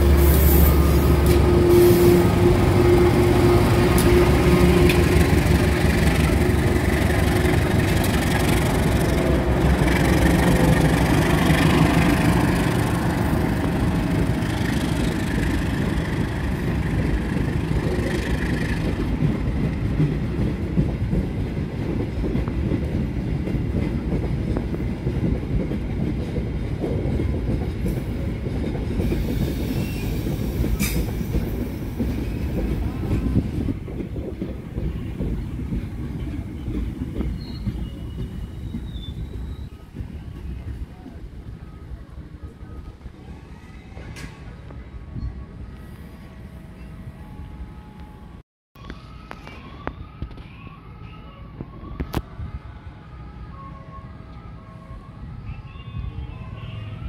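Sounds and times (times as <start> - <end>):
locomotive engine droning: 0.0 - 20.2
train rumble: 0.0 - 57.0.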